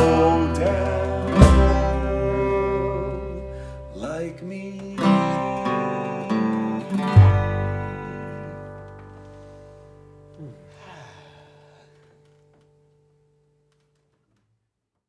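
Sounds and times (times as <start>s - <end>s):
deep upright bass note: 0.0s - 3.7s
strummed guitar chords: 0.0s - 11.0s.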